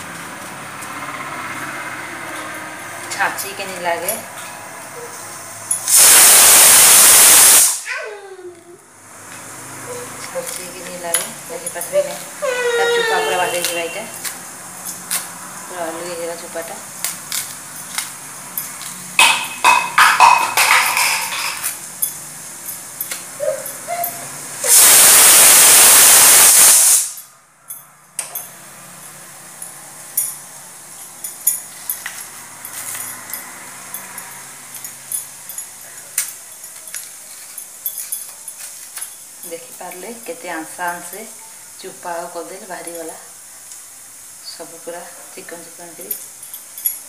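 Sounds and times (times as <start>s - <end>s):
loud hiss: 5.7s - 8.1s, 24.4s - 27.3s.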